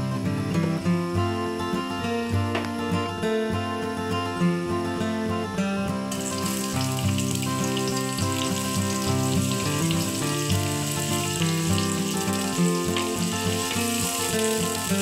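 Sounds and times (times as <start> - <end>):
instrumental background music: 0.0 - 15.0
onions sizzling in hot oil: 6.1 - 15.0.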